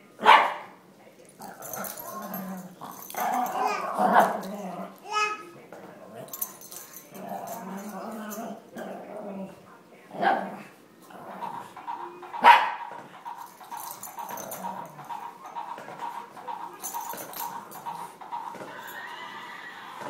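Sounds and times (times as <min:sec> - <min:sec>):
dogs play-fighting noises: 0:00.2 - 0:20.0
dog barking sharply: 0:12.4 - 0:12.9.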